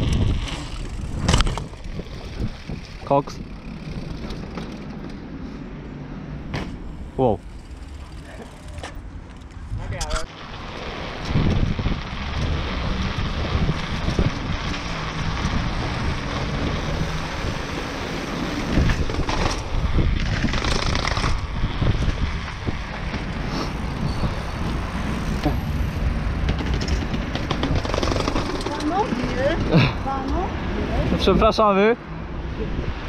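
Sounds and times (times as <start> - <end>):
bike tyres rattling on cobblestones: 0.0 - 5.4, 6.4 - 31.0
wind buffeting microphone: 0.0 - 5.4, 9.0 - 31.6, 32.3 - 33.0
bike knocking down concrete steps: 26.4 - 29.9.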